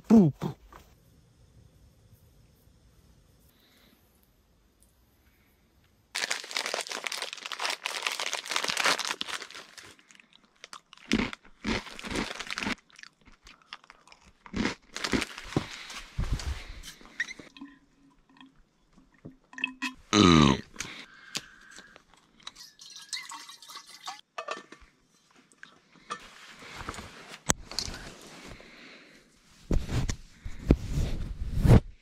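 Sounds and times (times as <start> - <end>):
crunching and chewing: 6.2 - 17.5
plastic snack bag crinkling: 6.2 - 17.5.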